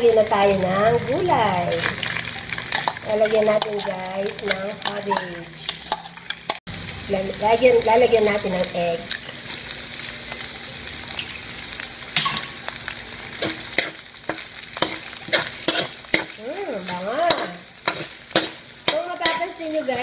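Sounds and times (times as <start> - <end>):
food sizzling in oiled pan: 0.0 - 20.0
spatula scraping and knocking pan: 2.7 - 6.6, 13.4 - 20.0.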